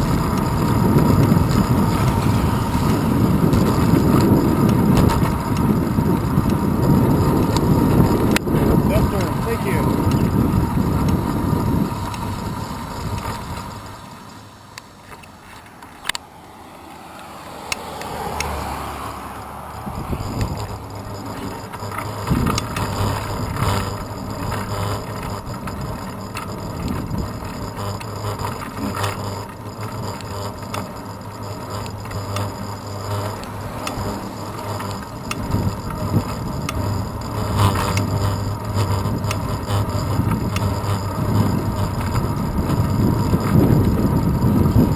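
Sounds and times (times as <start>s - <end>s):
bicycle road rumble: 0.0s - 44.9s
rattles and clicks from bumps: 0.0s - 44.9s
wind rush: 16.2s - 20.9s.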